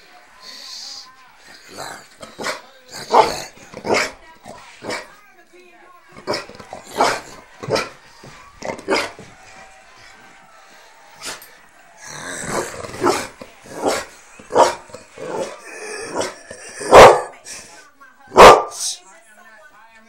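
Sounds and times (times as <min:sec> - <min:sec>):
dog barking and growling: 0:01.6 - 0:05.2, 0:06.1 - 0:08.0, 0:08.6 - 0:09.2, 0:12.0 - 0:17.4, 0:18.3 - 0:18.8.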